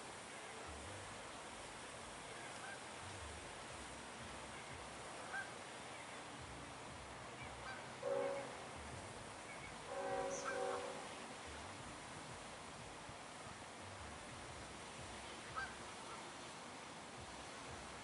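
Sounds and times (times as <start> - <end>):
faint outdoor background: 0.0 - 18.0
goose honking: 5.2 - 5.5, 7.4 - 8.6, 9.6 - 11.1, 15.5 - 16.2.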